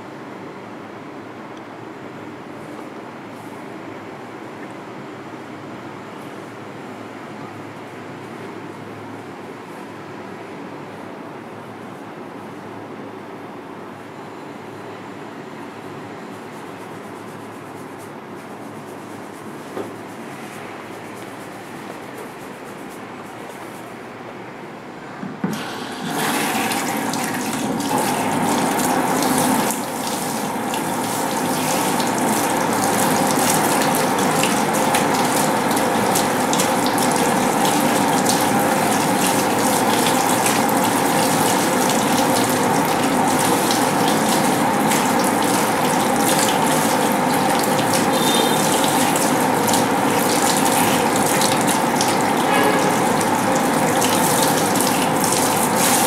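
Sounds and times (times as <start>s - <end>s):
water running into basin: 25.5s - 56.0s.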